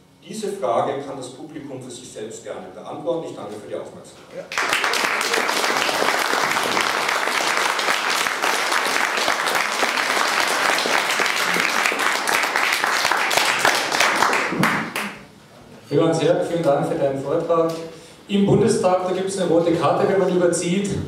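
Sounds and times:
audience applauding: 4.5 - 15.2.

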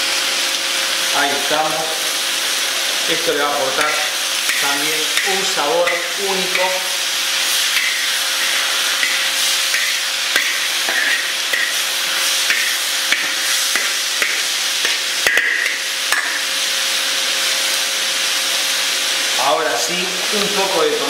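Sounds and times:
food sizzling in a wok: 0.0 - 21.0
metal spatula scraping pan: 3.8 - 16.4.

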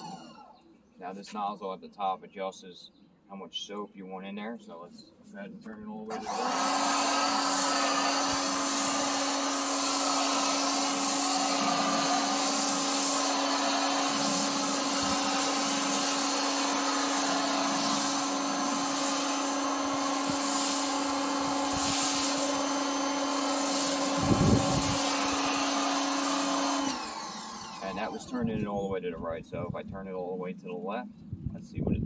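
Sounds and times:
pressure washer motor hum: 0.0 - 0.5, 6.1 - 28.6
spraying hiss: 6.5 - 27.1.

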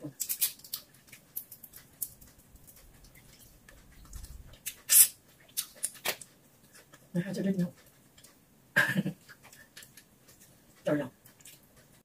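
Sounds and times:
shrimp shells cracking: 0.2 - 2.8
chewing and lip-smacking: 0.2 - 7.1, 7.8 - 8.4, 9.2 - 12.0.

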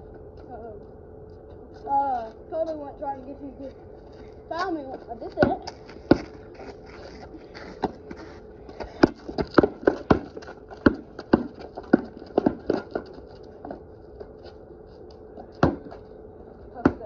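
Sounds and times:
basketball bouncing on concrete: 4.9 - 6.4, 7.7 - 13.8, 15.6 - 16.0, 16.8 - 17.0.

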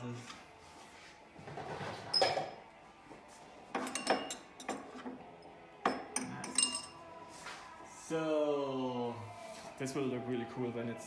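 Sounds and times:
glasses clinking: 3.7 - 5.2, 5.8 - 7.0.

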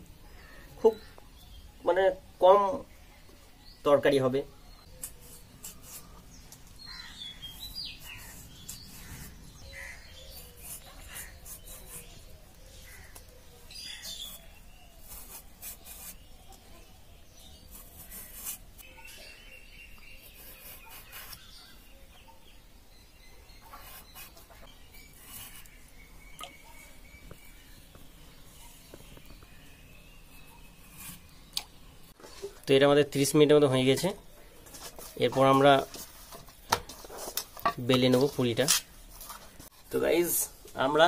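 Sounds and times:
birds chirping: 0.0 - 41.0
potato skin scraping on blade: 7.6 - 12.2.

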